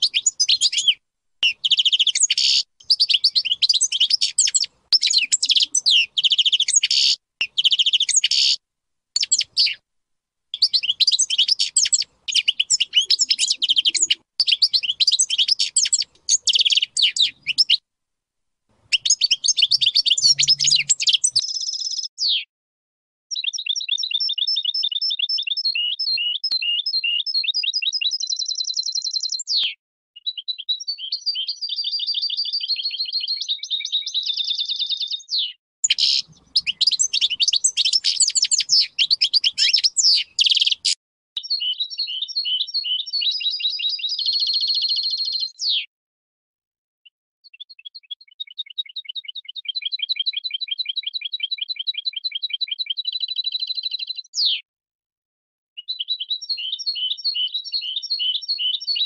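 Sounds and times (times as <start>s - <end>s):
goldfinch singing: 0.0s - 8.6s, 9.2s - 9.8s, 10.6s - 17.8s, 18.9s - 22.4s, 23.3s - 45.9s, 55.8s - 59.0s.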